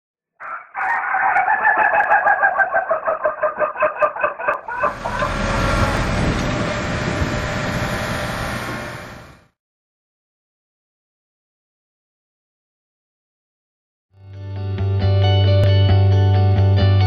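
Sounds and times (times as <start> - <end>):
rooster crowing: 0.4 - 6.1
roller engine rumbling: 4.6 - 9.5.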